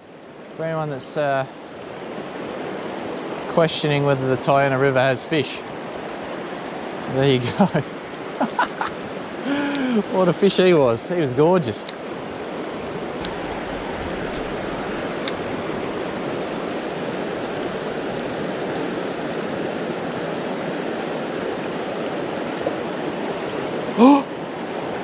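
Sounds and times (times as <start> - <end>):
river rushing over rocks: 5.6 - 25.0.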